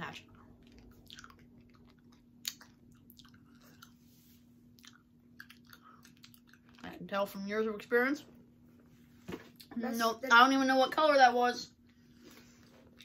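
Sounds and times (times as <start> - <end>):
faint steady hum: 0.0 - 13.0
mouth chewing clicks and smacks: 0.4 - 4.0, 4.7 - 6.9.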